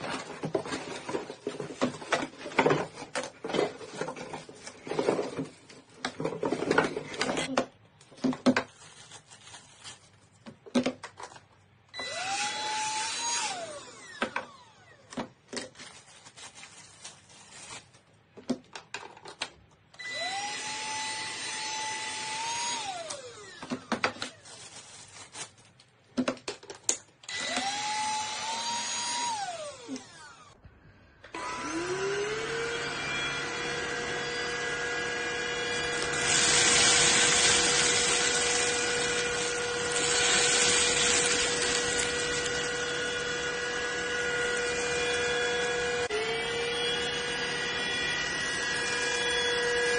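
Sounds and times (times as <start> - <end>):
vacuum motor whining: 12.0 - 15.1, 20.0 - 23.8, 27.3 - 30.6, 31.2 - 49.9.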